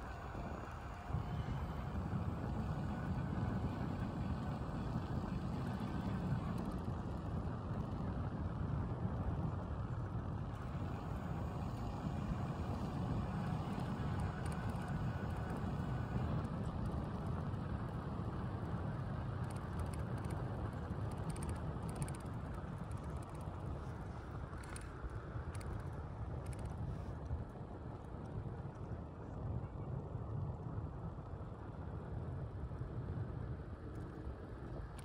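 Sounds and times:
bicycle tyres rolling on concrete: 0.0s - 30.8s
wind buffeting microphone: 0.0s - 35.0s
faint clicks: 19.4s - 27.4s.

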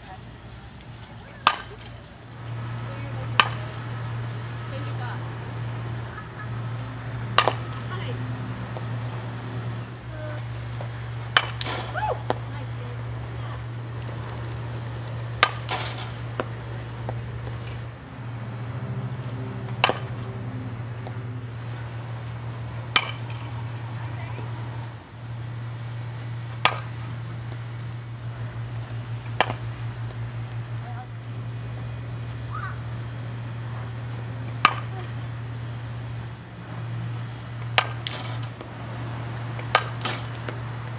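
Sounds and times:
steady low hum: 0.0s - 40.9s
bat cracking a ball: 1.4s - 1.9s, 3.4s - 3.8s, 7.3s - 7.9s, 10.7s - 12.4s, 14.0s - 17.8s, 19.7s - 20.3s, 22.8s - 23.6s, 26.5s - 27.1s, 29.2s - 30.3s, 34.6s - 35.1s, 37.6s - 38.7s, 39.5s - 40.9s
softballs landing with smacks: 7.2s - 7.9s, 10.7s - 12.4s, 14.0s - 17.8s, 19.6s - 20.3s, 22.4s - 23.6s, 26.5s - 27.7s, 28.9s - 30.2s, 37.6s - 40.9s.

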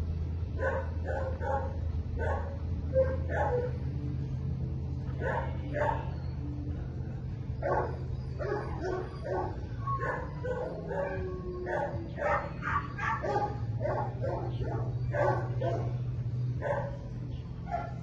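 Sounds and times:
low hum: 0.0s - 18.0s
dog barking: 0.6s - 3.8s, 5.2s - 6.1s, 7.6s - 16.0s, 16.6s - 17.0s, 17.7s - 18.0s.

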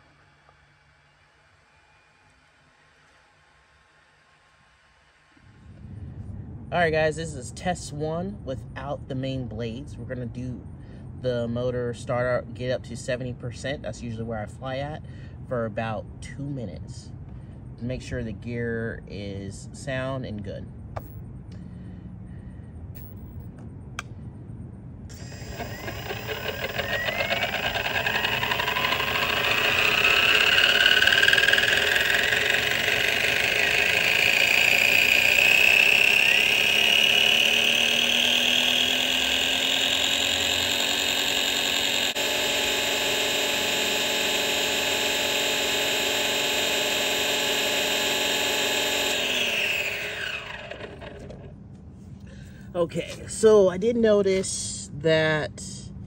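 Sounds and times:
electric motor whine: 25.1s - 51.5s.

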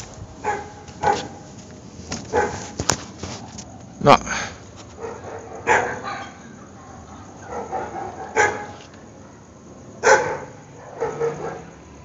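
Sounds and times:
dogs barking: 0.4s - 1.4s, 2.3s - 2.8s, 5.0s - 11.8s.

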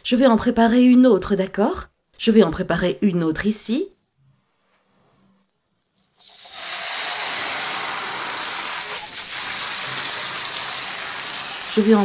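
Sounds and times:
batter sizzling in frying pan: 6.2s - 12.0s.

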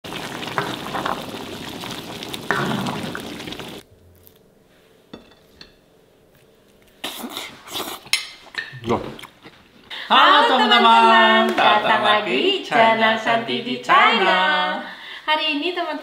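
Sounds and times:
food sizzling in a wok: 0.0s - 3.8s.

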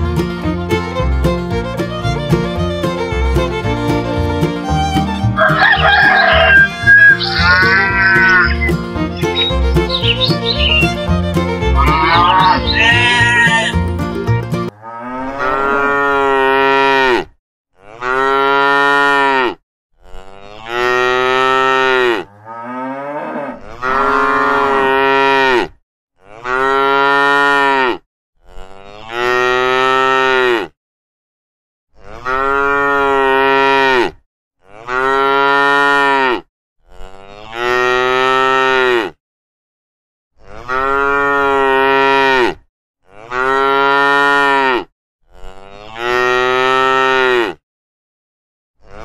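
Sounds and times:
cow mooing: 5.4s - 8.7s, 11.7s - 13.8s, 14.7s - 30.8s, 32.0s - 39.2s, 40.4s - 47.6s.

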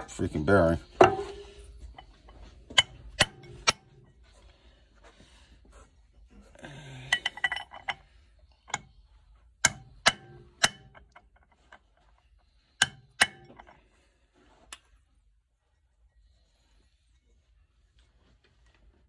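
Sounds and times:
metal handling rattle: 0.9s - 4.2s, 7.1s - 8.8s.

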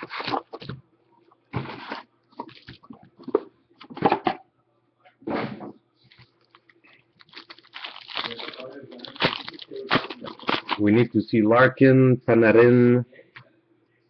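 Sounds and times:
packaging crinkling and tearing: 0.0s - 0.7s, 1.8s - 2.9s, 6.1s - 11.1s.

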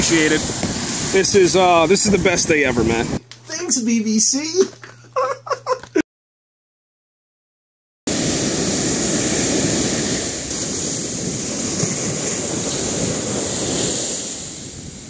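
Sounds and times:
ocean waves breaking on beach: 0.0s - 3.2s, 8.1s - 15.0s
wind on microphone: 0.0s - 3.2s, 8.1s - 15.0s.

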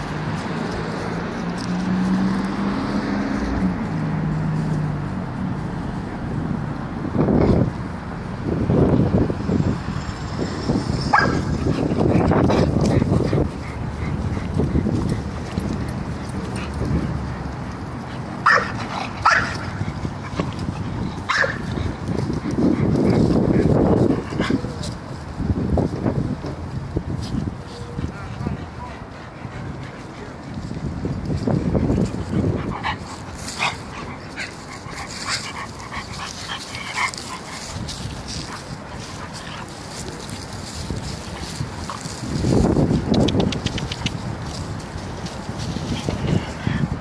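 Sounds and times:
dogs barking: 11.0s - 17.5s, 18.2s - 20.6s, 21.2s - 22.0s.

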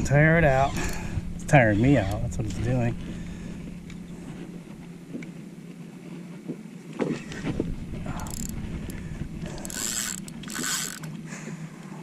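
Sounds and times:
fishing reel rattling: 0.5s - 2.6s, 8.0s - 11.2s.

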